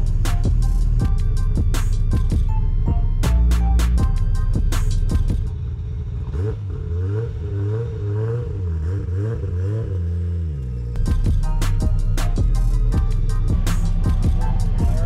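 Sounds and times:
music: 0:00.0 - 0:05.6, 0:11.0 - 0:15.0
car engine revving: 0:03.2 - 0:15.0.

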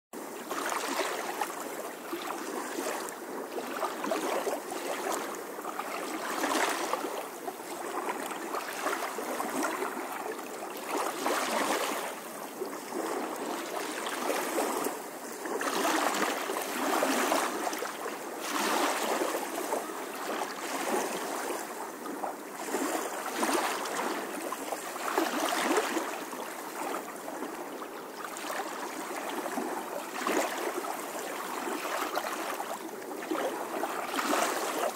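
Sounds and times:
pool water rushing and sloshing: 0:00.2 - 0:34.9.

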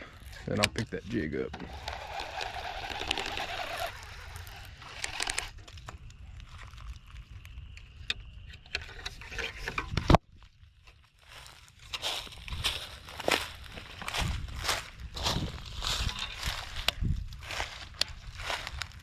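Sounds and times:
fishing reel whirring: 0:01.6 - 0:05.6
rod and reel handling clicks: 0:01.7 - 0:04.0.

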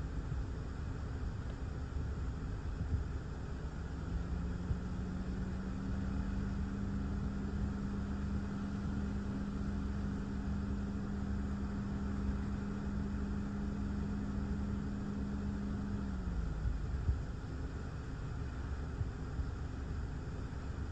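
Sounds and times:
steady hum: 0:00.0 - 0:20.9.

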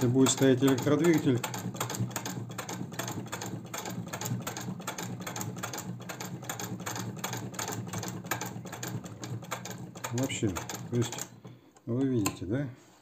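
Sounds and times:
sewing machine clicking: 0:00.0 - 0:12.4.

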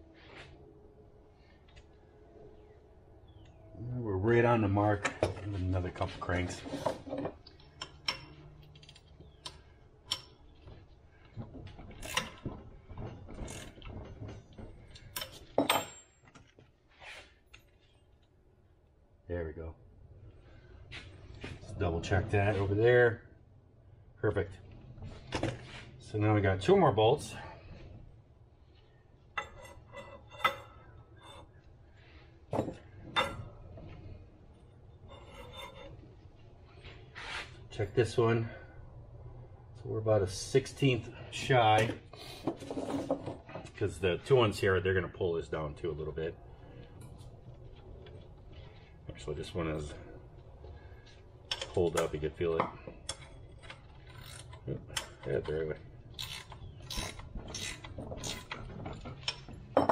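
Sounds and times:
metal clinking and knocking: 0:11.4 - 0:16.6, 0:32.5 - 0:33.6, 0:56.1 - 0:59.9.

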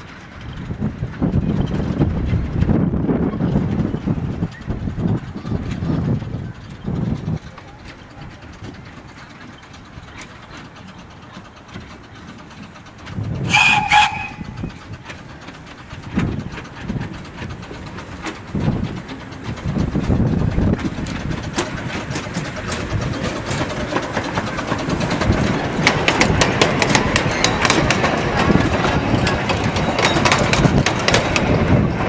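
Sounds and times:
train running rumble: 0:00.0 - 0:32.0
wheel clicks over rail joints: 0:00.0 - 0:32.0
steam locomotive whistle: 0:13.4 - 0:14.6.

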